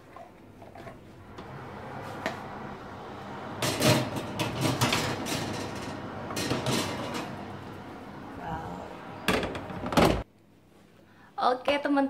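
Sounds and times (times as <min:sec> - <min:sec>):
oven humming: 0:00.9 - 0:10.3
metal tray scraping on oven rack: 0:01.2 - 0:10.2
oven click: 0:01.3 - 0:10.2.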